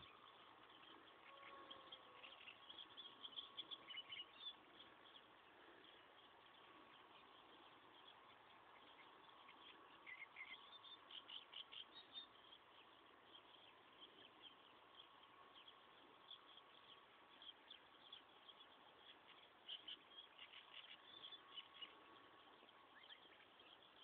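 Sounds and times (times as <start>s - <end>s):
faint steady tone: 0.0s - 24.0s.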